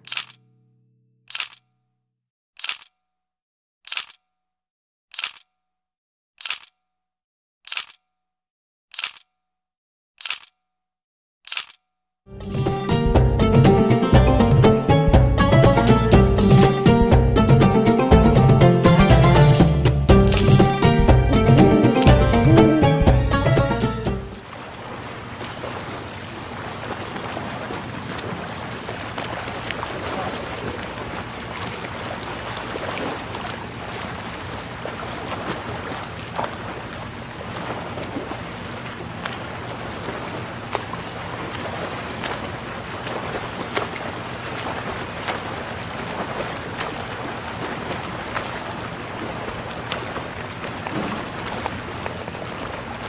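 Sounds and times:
boat engine droning: 12.3 - 53.0.

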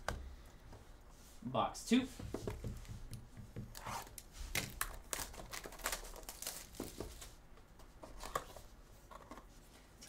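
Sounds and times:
plastic wrap and cardboard tearing: 3.7 - 7.3.

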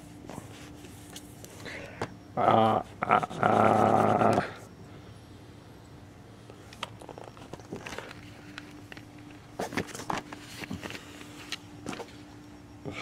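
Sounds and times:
faint steady hum: 0.0 - 13.0
objects clicking and rustling: 6.7 - 12.2.

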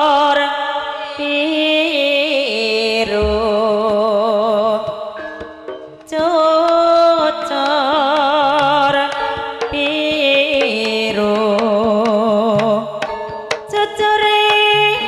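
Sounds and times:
woman singing with vibrato: 0.0 - 15.0
gamelan music: 4.4 - 15.0
hand drum strokes: 4.8 - 15.0.

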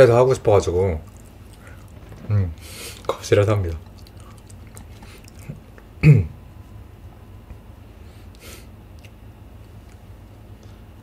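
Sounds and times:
low room hum: 0.0 - 11.0
quick breath: 2.6 - 3.1.

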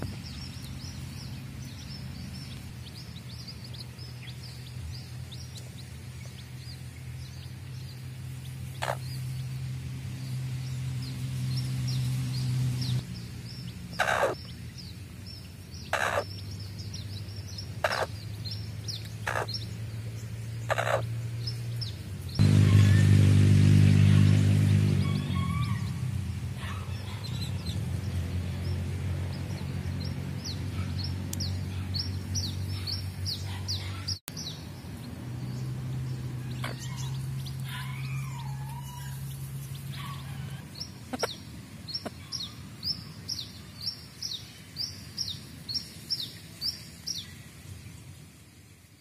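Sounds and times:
chicks peeping: 0.0 - 9.6, 10.6 - 19.8, 20.6 - 23.1, 26.6 - 47.2
hen clucking: 8.7 - 9.2, 14.0 - 14.5, 15.9 - 16.4, 17.8 - 18.2, 18.9 - 19.6, 20.7 - 21.1, 36.4 - 39.3, 40.0 - 42.4.

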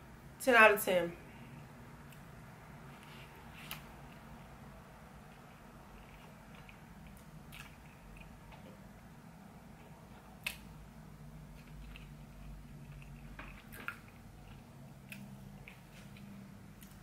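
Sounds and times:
faint room hum: 0.0 - 17.0
person chewing food: 5.2 - 9.0, 11.4 - 17.0.

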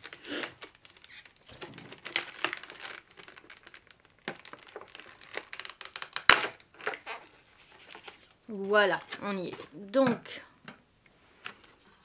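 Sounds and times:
plastic packaging crinkling: 0.0 - 9.1.

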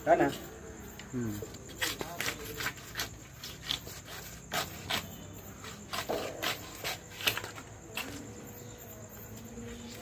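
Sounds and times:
crickets chirring: 0.0 - 10.0
knife scraping fish: 1.6 - 8.2.

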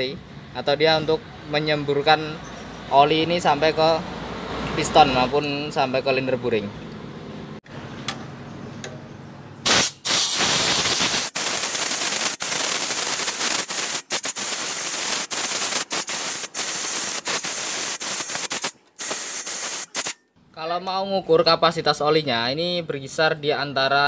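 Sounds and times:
compressed air blow gun hissing: 9.7 - 20.2.

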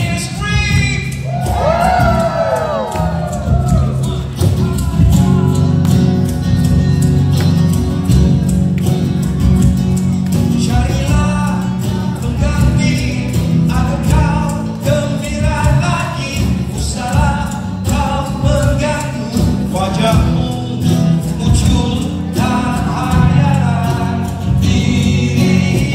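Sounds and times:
live band playing: 0.0 - 25.9
person singing: 10.4 - 25.9.

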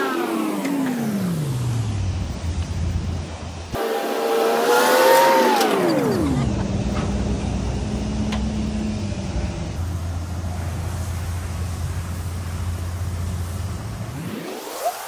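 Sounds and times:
low engine-like drone: 0.0 - 15.0.

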